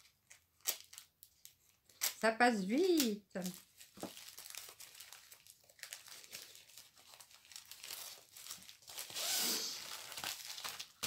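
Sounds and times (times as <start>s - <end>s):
plastic packaging crinkling: 0.0s - 11.0s.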